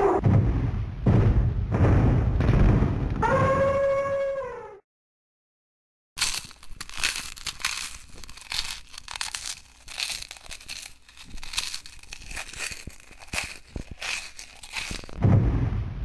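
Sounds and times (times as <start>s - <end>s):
rustling and crinkling: 6.2s - 15.2s.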